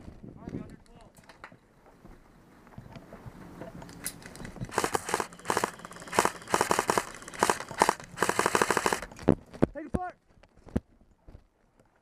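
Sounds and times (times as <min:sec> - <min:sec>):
airsoft rifle bursts: 0:04.7 - 0:09.2.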